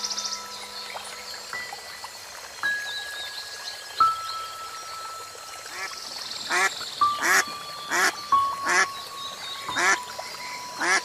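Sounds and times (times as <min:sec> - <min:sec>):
soft background music: 0:00.0 - 0:11.0
ducks quacking: 0:06.5 - 0:08.9, 0:09.8 - 0:10.0, 0:10.8 - 0:11.0.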